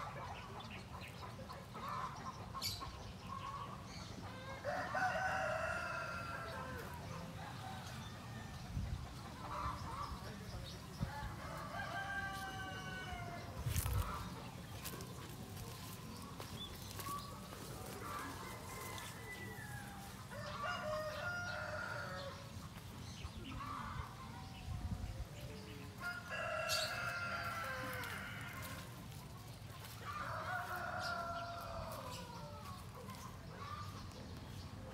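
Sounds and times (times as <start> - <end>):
chickens clucking: 0.0 - 34.9
rooster crowing: 4.6 - 6.9, 11.4 - 13.4, 18.2 - 22.4, 26.0 - 28.8.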